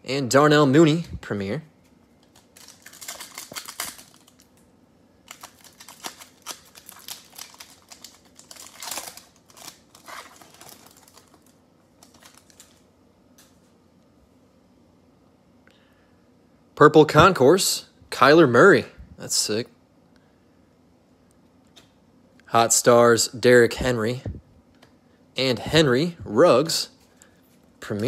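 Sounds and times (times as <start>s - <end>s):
foil pack tearing and crinkling: 2.3s - 4.5s, 5.3s - 12.8s.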